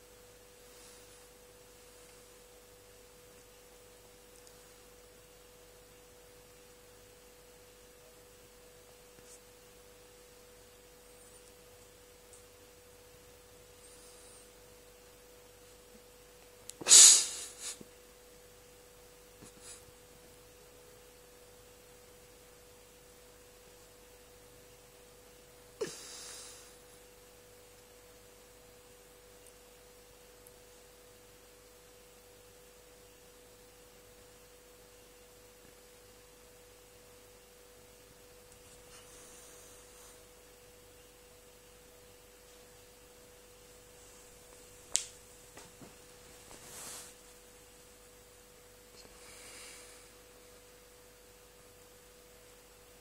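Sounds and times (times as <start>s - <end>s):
faint high-pitched hum: 0.0s - 53.0s
cat breathy bursts: 16.8s - 17.8s.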